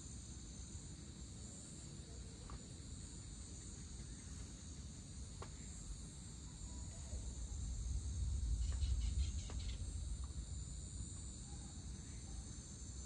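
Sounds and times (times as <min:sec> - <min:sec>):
crickets and insects chirping: 0:00.0 - 0:13.0
low rumble: 0:07.2 - 0:12.3.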